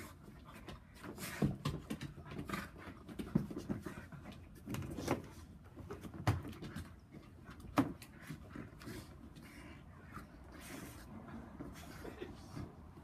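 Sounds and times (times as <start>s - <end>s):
dog panting: 6.5s - 13.0s.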